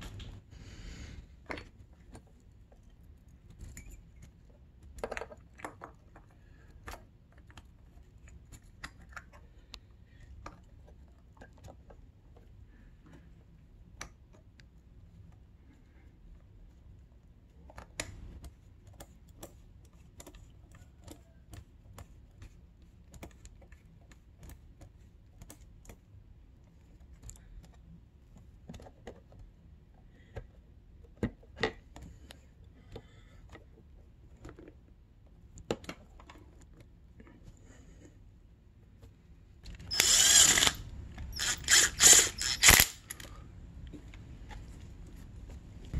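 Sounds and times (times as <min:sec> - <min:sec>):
low steady hum: 0:00.0 - 0:45.9.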